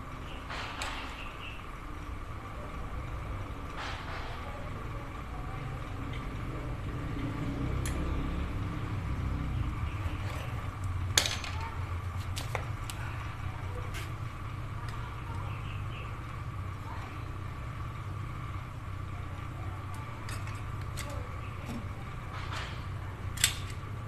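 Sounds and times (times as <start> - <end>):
low engine-like rumble: 0.0 - 24.0
metal parts clicking and clinking: 20.2 - 21.2, 23.3 - 23.8.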